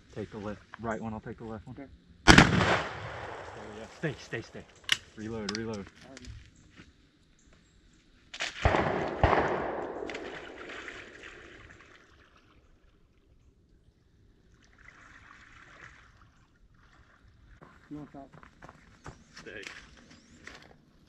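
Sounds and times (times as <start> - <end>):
gunshot echo: 2.3 - 4.2, 8.4 - 11.2
shotgun shots: 2.3 - 4.2, 8.4 - 11.1.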